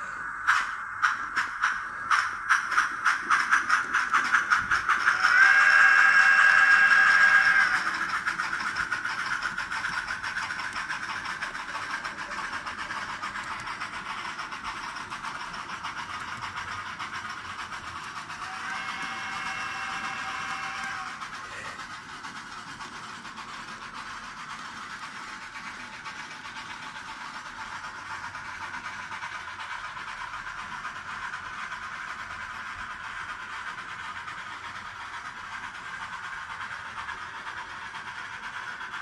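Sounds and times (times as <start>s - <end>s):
model train whirring: 0.0s - 39.0s
train whistle chord: 5.2s - 7.9s, 18.4s - 21.3s.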